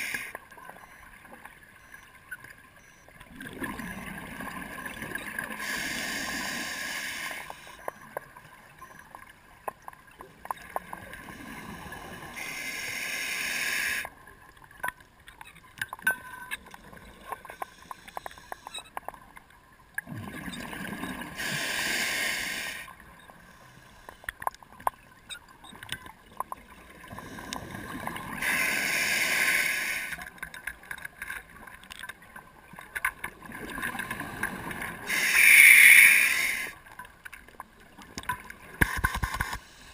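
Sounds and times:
faint clicks: 0:14.0 - 0:20.1, 0:24.0 - 0:26.7, 0:30.0 - 0:34.5.

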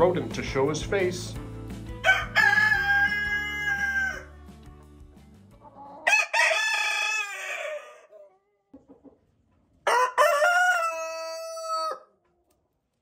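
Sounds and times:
rooster crowing: 0:02.0 - 0:04.3, 0:06.0 - 0:08.1, 0:09.8 - 0:12.1.

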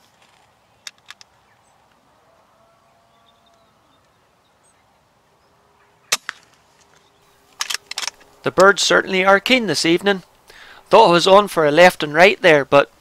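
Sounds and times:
faint outdoor background: 0:00.0 - 0:13.0
air rifle shot crack: 0:06.1 - 0:06.5.

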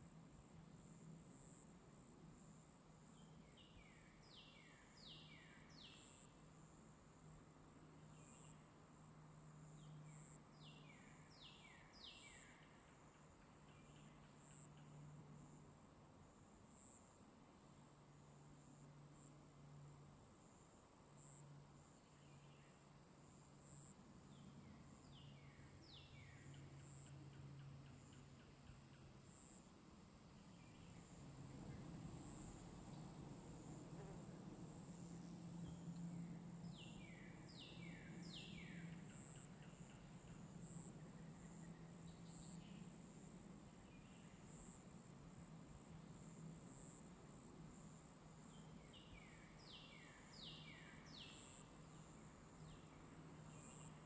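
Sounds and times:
low steady hum: 0:00.0 - 0:54.0
bird singing: 0:03.1 - 0:06.3, 0:09.7 - 0:15.1, 0:23.8 - 0:29.1, 0:35.5 - 0:43.0, 0:43.8 - 0:44.8, 0:48.4 - 0:54.0
insect trill: 0:17.8 - 0:54.0.

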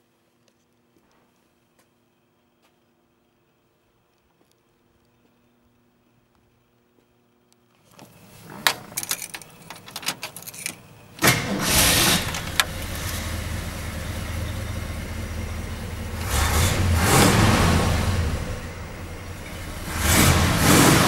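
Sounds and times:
clicks and rattles at controls: 0:08.0 - 0:13.2
truck engine starting and idling: 0:08.3 - 0:21.0.

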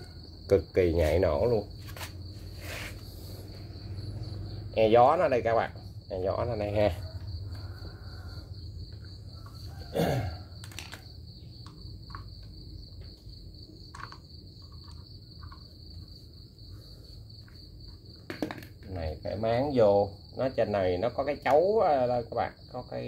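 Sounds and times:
crickets chirping: 0:00.0 - 0:23.0.

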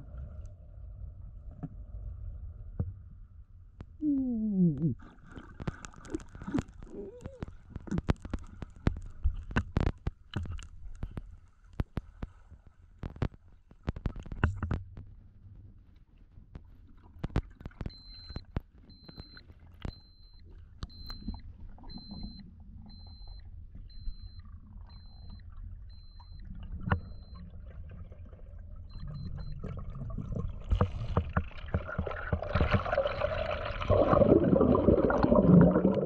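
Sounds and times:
underwater grunting rumbles: 0:04.0 - 0:05.2
sharp underwater clicks: 0:04.7 - 0:12.4, 0:13.0 - 0:14.8, 0:17.2 - 0:27.4
short high beeps: 0:17.9 - 0:27.4.

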